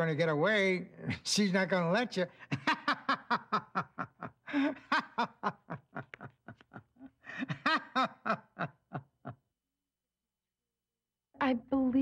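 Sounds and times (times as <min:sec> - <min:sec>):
person laughing: 0:02.5 - 0:09.4.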